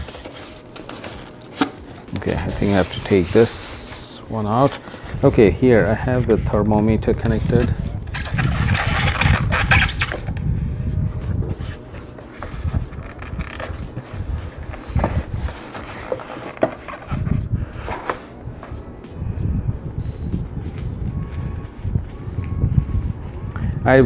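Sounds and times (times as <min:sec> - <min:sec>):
packaging rustling and scraping: 0:00.0 - 0:10.4, 0:11.1 - 0:18.9, 0:20.0 - 0:23.5.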